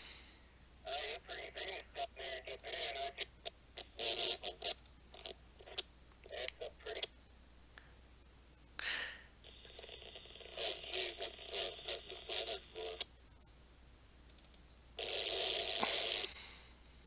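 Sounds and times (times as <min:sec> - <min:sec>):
steady hiss: 0:00.0 - 0:14.3, 0:14.9 - 0:17.0
radio static crackling: 0:00.8 - 0:08.3, 0:09.4 - 0:13.6, 0:15.0 - 0:16.6.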